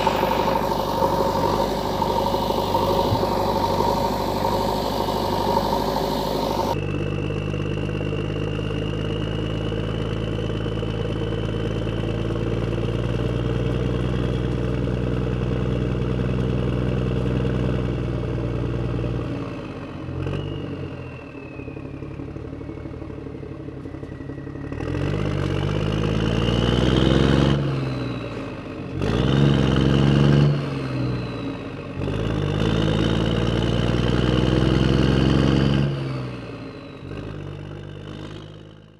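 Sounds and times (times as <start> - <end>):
vehicle engine revving: 0.0 - 7.5, 32.0 - 38.8.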